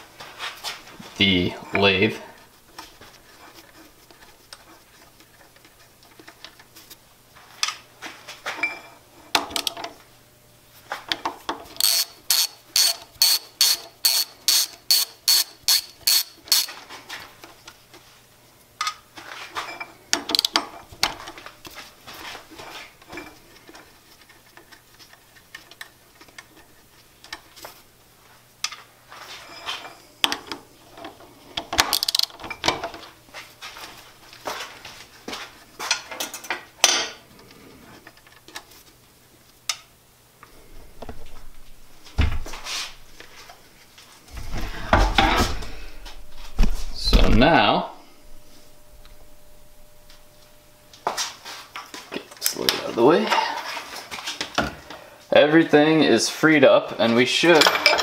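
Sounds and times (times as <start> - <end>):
socket ratchet clicking: 11.8 - 16.7
metal clinks and knocks: 57.6 - 58.0.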